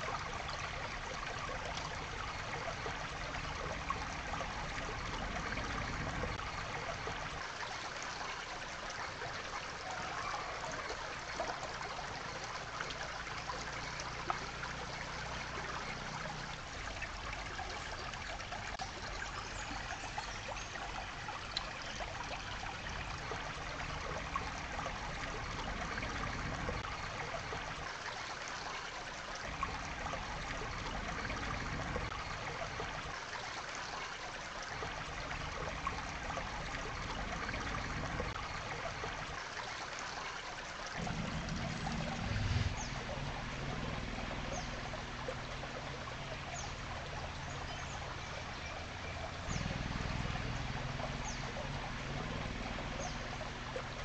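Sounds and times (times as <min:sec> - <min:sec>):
stream water flowing over rocks: 0:00.0 - 0:54.0.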